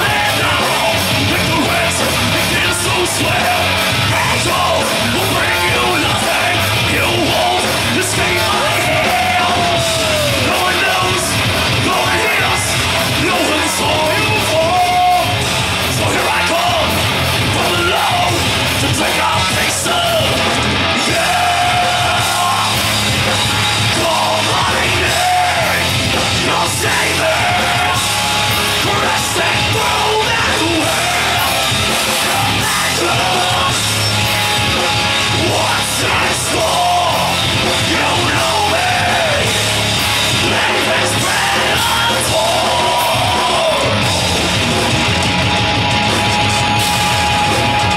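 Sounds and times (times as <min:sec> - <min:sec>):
bass guitar: 0:00.0 - 0:47.9
drums: 0:00.0 - 0:47.9
electric guitar: 0:00.0 - 0:47.9
harsh yelled vocals: 0:00.0 - 0:47.9.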